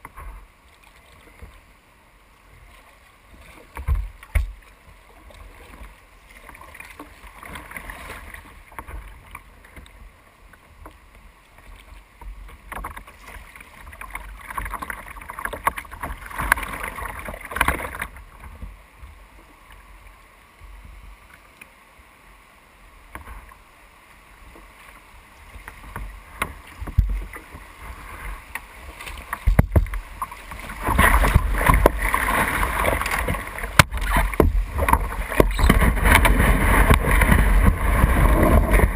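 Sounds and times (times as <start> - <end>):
water lapping against kayak: 0.0 - 38.9
water rushing through riffle: 29.4 - 38.9.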